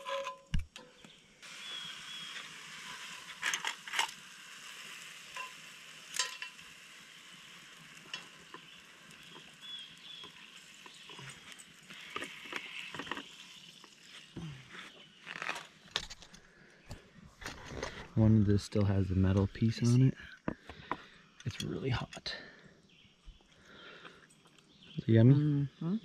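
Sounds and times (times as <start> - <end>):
sausage sizzling in skillet: 0.9 - 16.0
metal utensil clinking on pan: 5.3 - 6.7.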